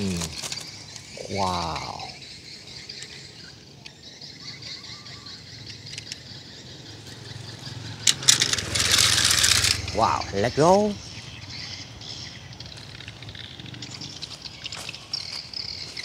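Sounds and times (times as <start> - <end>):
faint high-pitched chirping: 0.0 - 16.0
metal toy truck rattling in basket: 8.1 - 10.1.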